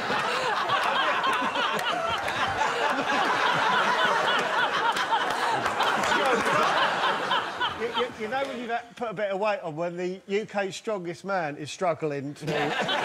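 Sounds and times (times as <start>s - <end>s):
audience laughing: 0.0s - 8.8s, 12.4s - 13.0s.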